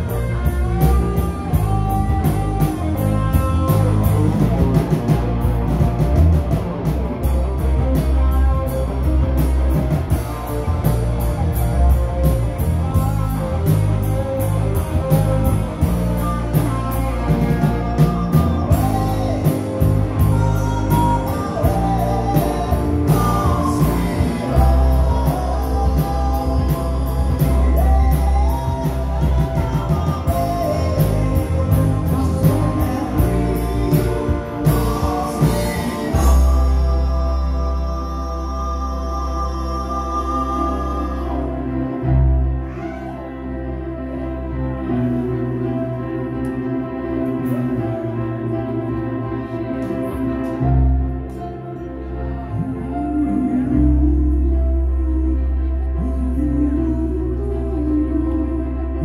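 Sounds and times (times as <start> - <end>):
live rock band playing: 0.0 - 59.0.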